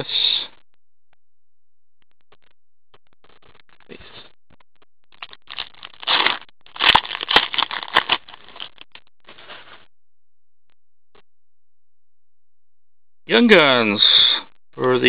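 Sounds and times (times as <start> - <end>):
foil wrapper crackling: 5.2 - 9.8.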